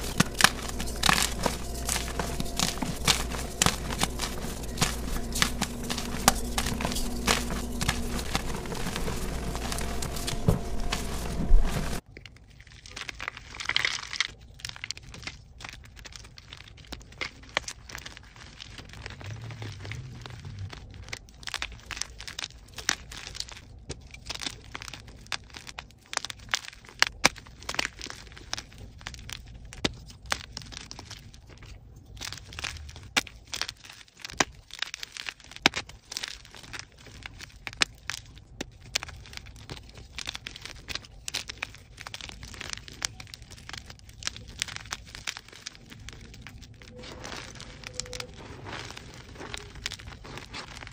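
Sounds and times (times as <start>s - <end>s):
low hum: 0.0s - 12.0s
chalk crunching and cracking: 0.0s - 50.9s.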